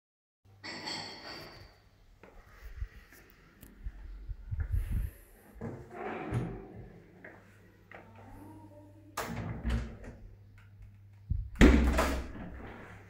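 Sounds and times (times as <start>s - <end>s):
door creaking: 5.6s - 7.0s.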